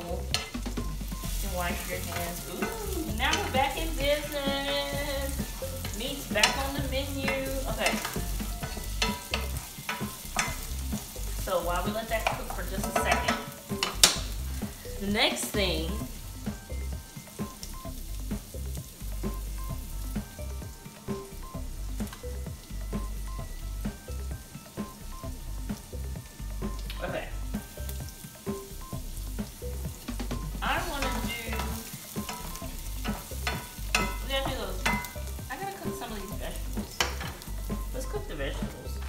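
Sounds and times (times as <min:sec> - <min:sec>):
wavering pitched sounds: 0:00.0 - 0:16.8
onion sizzling in hot oil: 0:00.0 - 0:39.0
spoon knocking against pan: 0:01.3 - 0:11.2, 0:12.2 - 0:14.3, 0:30.9 - 0:35.4, 0:36.8 - 0:37.8.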